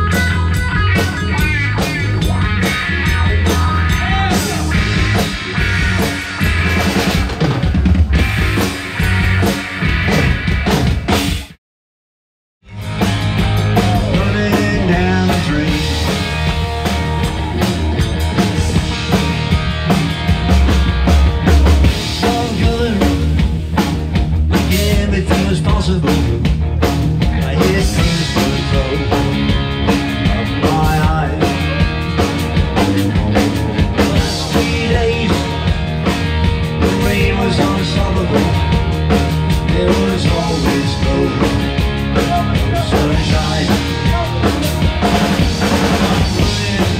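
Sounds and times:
drum kit beat: 0.0s - 11.6s, 12.6s - 46.9s
electric bass: 0.0s - 11.6s, 12.6s - 46.9s
electric guitar: 0.0s - 11.6s, 12.6s - 46.9s.

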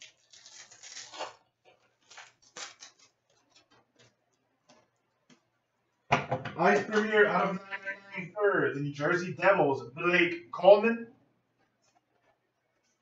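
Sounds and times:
cards rustling and clicking: 0.0s - 4.9s.

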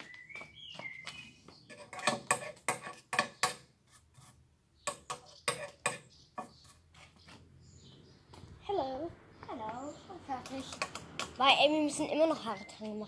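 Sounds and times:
hard objects clacking: 10.4s - 11.4s.

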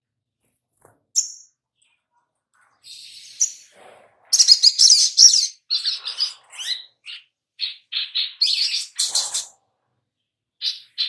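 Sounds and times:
bird twittering and chirping: 1.1s - 2.0s, 2.7s - 9.6s, 10.6s - 11.0s.

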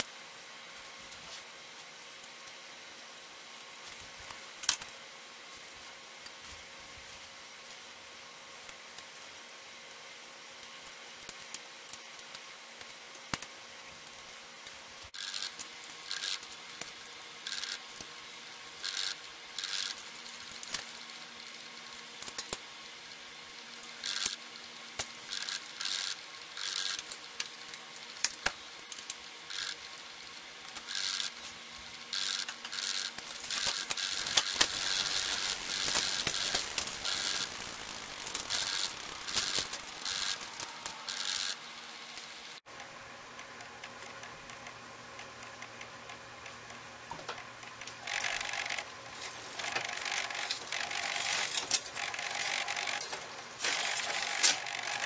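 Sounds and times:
bicycle chain and wheel whirring: 15.0s - 42.6s, 43.4s - 55.0s
derailleur scraping and clicking: 18.8s - 20.0s, 24.0s - 24.4s, 25.3s - 27.2s, 30.7s - 31.5s, 32.1s - 41.6s, 48.0s - 55.0s.

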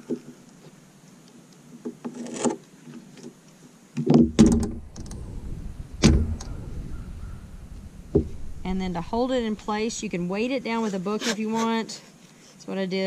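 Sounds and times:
low rumble: 4.4s - 10.8s.

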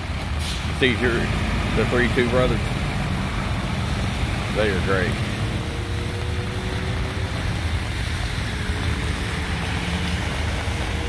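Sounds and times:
rain and water on road: 0.0s - 11.0s
vehicle engines running: 0.0s - 11.0s.

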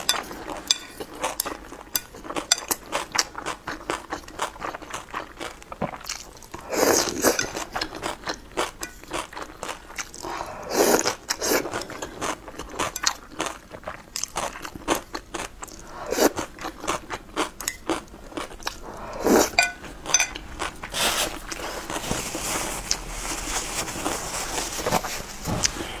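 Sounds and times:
slurping noodles: 6.0s - 7.9s, 18.8s - 19.6s
paper napkin rustle: 21.0s - 26.0s.

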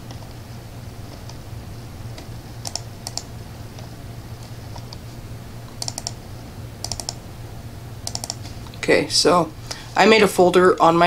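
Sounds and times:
low steady hum: 0.0s - 11.0s
laptop clicks: 2.1s - 3.3s, 5.7s - 6.2s, 6.8s - 7.2s, 8.0s - 8.5s.

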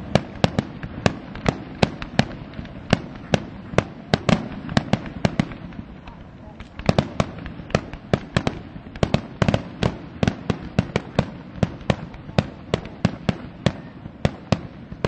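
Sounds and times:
fireworks bursting with sharp bangs: 0.0s - 15.0s.

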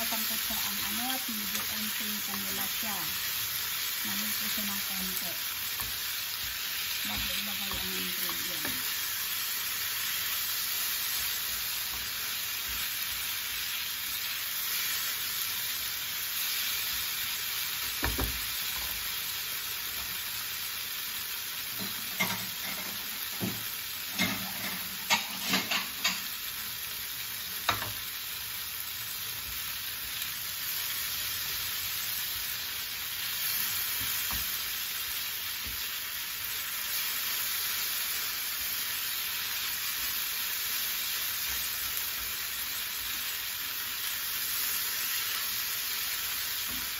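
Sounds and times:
tofu sizzling in frying pan: 0.0s - 46.9s
spatula scraping a pan: 24.2s - 26.2s.

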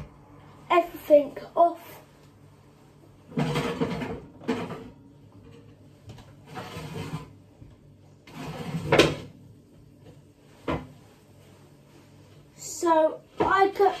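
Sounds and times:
ovenware scraping and sliding: 3.3s - 5.6s, 6.4s - 7.4s, 8.2s - 9.4s.

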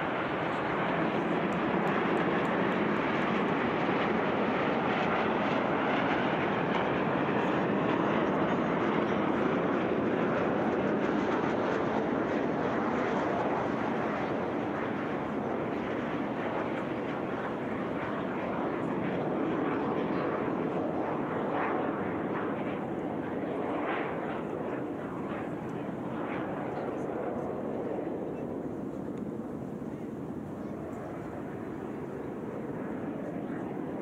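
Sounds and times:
jet engines roaring overhead: 0.0s - 34.0s.

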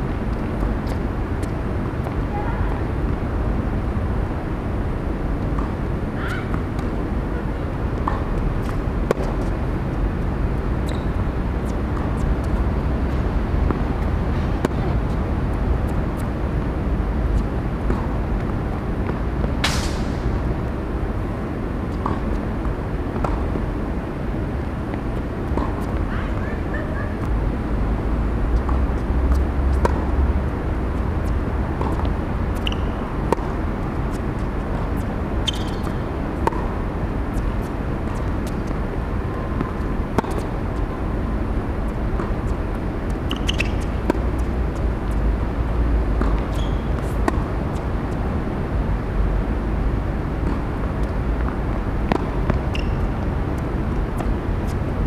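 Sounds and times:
racket hitting tennis ball: 8.0s - 9.6s, 21.9s - 23.6s, 31.2s - 41.0s, 42.1s - 45.1s, 46.0s - 48.2s, 50.4s - 54.8s
shoe squeaks: 10.9s - 11.2s, 32.6s - 33.0s, 35.4s - 36.1s, 43.3s - 44.0s, 46.3s - 47.2s, 52.6s - 53.1s.

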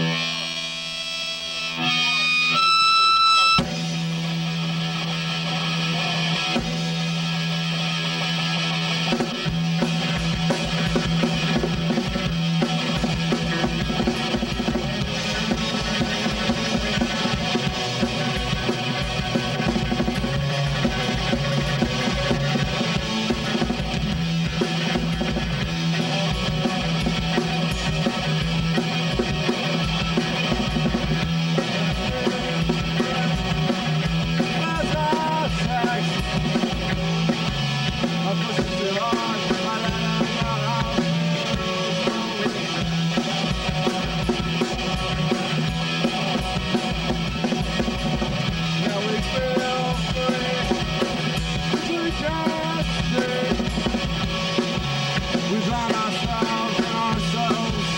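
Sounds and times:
driving bass line: 0.0s - 57.9s
live rock band playing: 0.0s - 57.9s
steady drumming: 1.6s - 57.9s.

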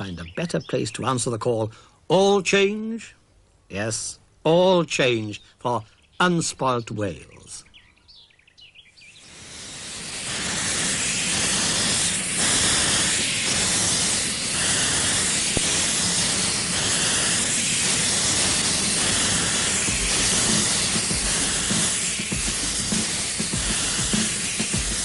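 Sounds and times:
steam locomotive blowing off steam: 9.2s - 25.0s.

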